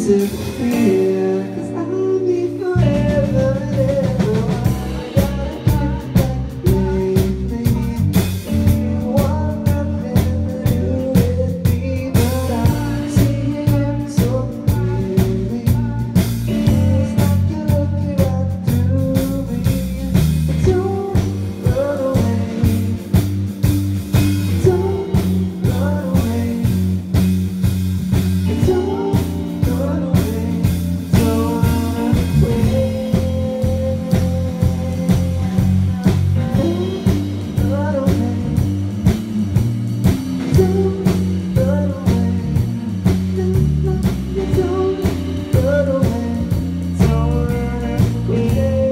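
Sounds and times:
man singing: 0.0 - 27.4, 28.3 - 48.9
live rock band: 0.0 - 48.9.

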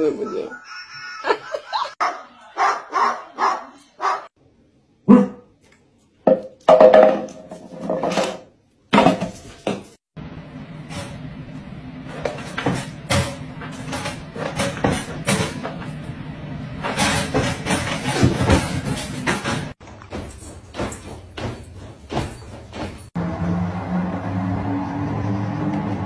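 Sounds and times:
dog barking: 2.0 - 4.3, 5.1 - 5.5.

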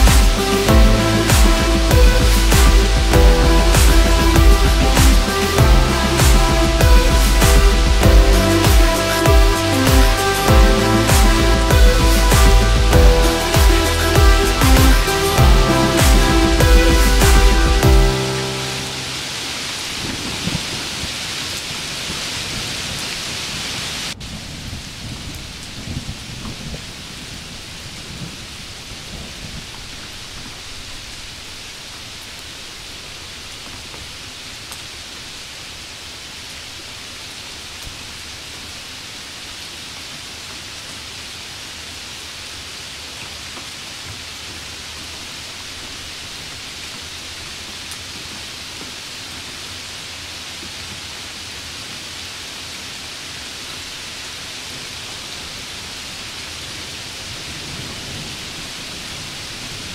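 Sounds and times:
low rumble: 0.0 - 18.1
rain falling: 0.0 - 59.9.

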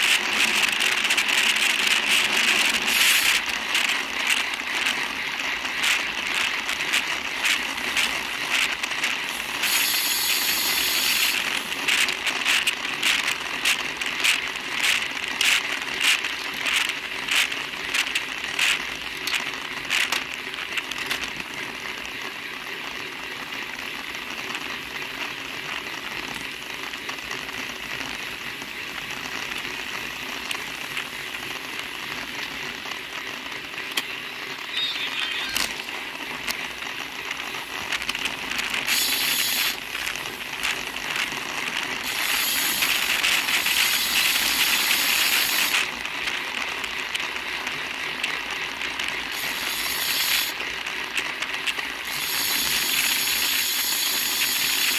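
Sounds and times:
bicycle clicking rattle: 0.0 - 54.9
wind and tyre noise: 0.0 - 54.9.

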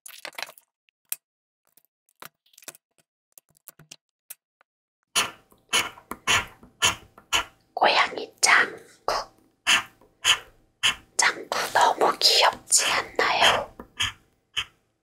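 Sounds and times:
scratch card being scratched: 5.2 - 7.6, 9.7 - 14.7.

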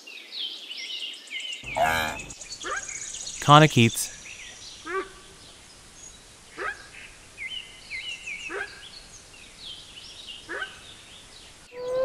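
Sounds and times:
small birds chirping: 1.6 - 12.0
wildebeest grunting: 1.7 - 2.3.

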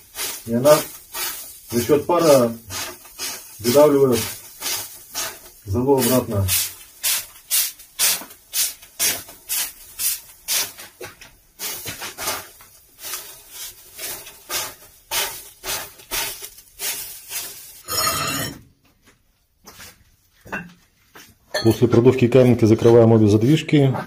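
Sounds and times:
spray bottle spritzing: 0.0 - 17.8
water turning to steam: 0.0 - 17.9.

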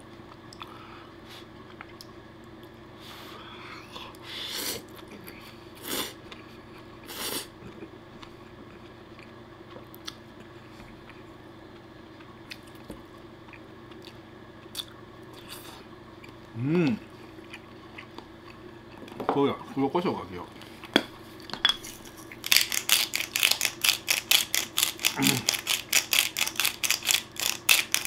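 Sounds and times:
quiet chewing: 7.6 - 19.2.

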